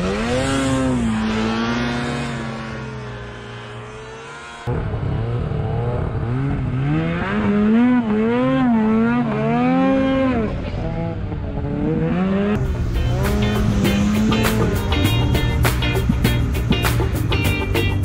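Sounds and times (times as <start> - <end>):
snowmobile engine revving: 0.0 - 17.8
music with a beat: 12.9 - 18.0.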